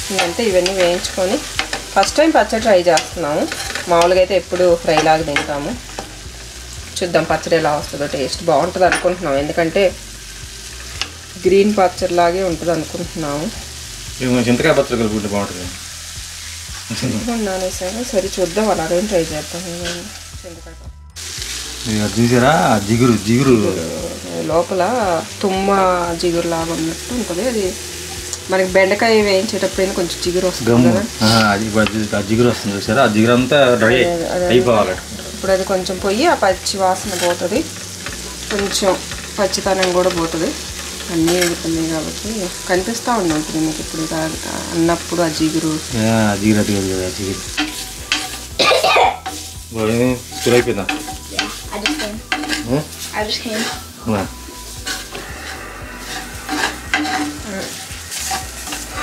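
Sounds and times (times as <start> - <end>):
cactus sizzling in a pan: 0.0 - 59.0.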